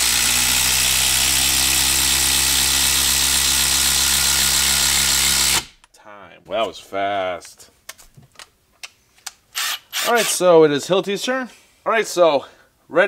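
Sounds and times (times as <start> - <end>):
impact driver buzzing: 0.0 - 5.8, 9.5 - 10.4.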